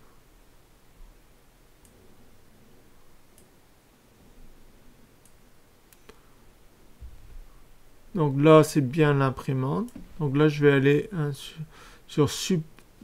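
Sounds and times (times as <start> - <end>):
faint room hiss: 0.0 - 13.0
computer mouse clicks: 3.3 - 3.5.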